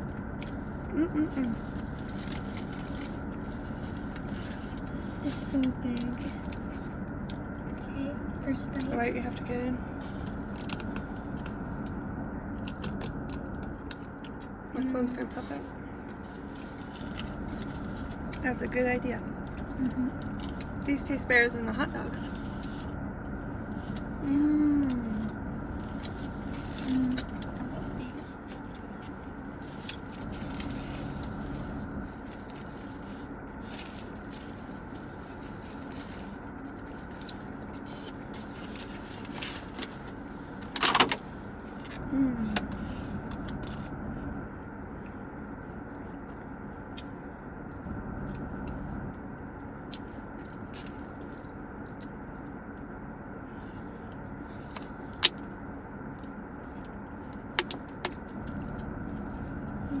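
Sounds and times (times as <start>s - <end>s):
car engine hum inside cabin: 0.0s - 60.0s
food wrappers rustling: 1.6s - 5.0s.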